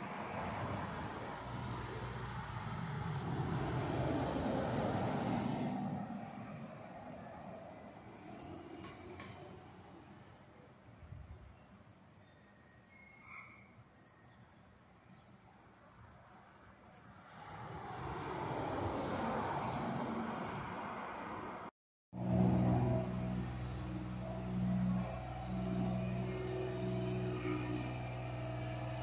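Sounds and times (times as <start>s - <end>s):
motor vehicle rumbling: 0.0s - 9.7s, 22.2s - 29.0s
insects chirping: 0.3s - 21.7s.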